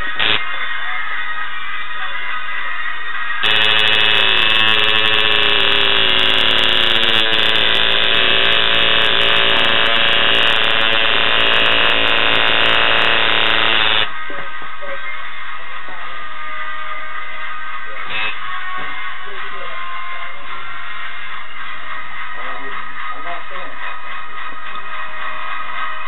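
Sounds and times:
tattoo machine buzzing: 0.0s - 0.4s, 3.4s - 14.1s.

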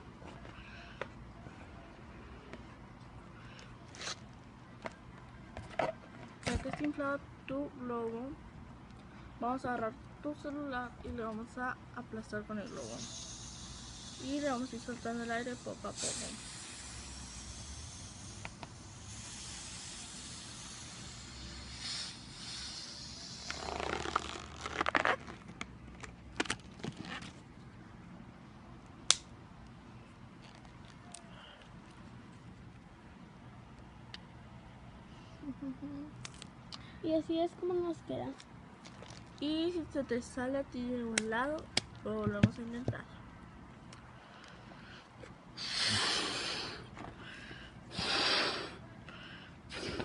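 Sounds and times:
person blowing up a balloon: 12.8s - 25.4s, 45.6s - 46.9s, 47.9s - 48.8s, 49.7s - 50.0s
rubber balloon crackling and squeaking: 23.2s - 27.5s.

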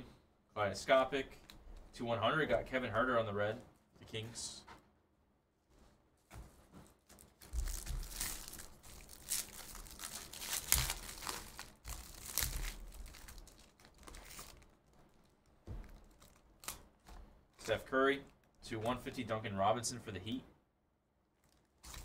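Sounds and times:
foil wrappers crinkling: 6.8s - 18.6s, 21.4s - 22.0s
foil wrappers ripping: 7.0s - 16.9s, 21.4s - 22.0s.

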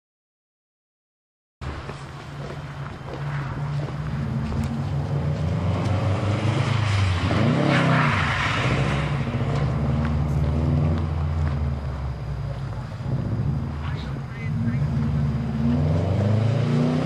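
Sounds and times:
car driving past: 1.6s - 17.0s
car engine running: 9.1s - 16.2s.

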